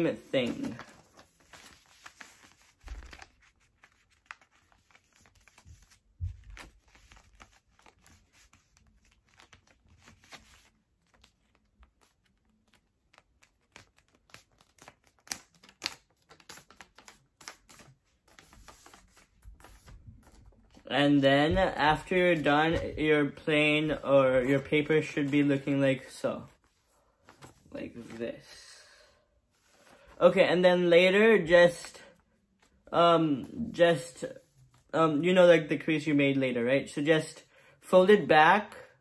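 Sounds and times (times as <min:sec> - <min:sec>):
paper rustling and crinkling: 0:00.0 - 0:28.5.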